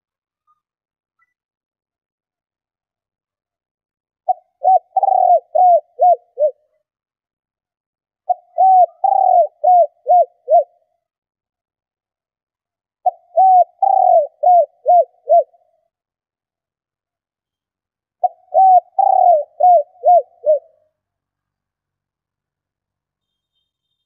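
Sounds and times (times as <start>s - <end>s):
dove cooing: 4.3s - 6.6s, 8.3s - 10.8s, 13.0s - 15.6s, 18.2s - 20.8s.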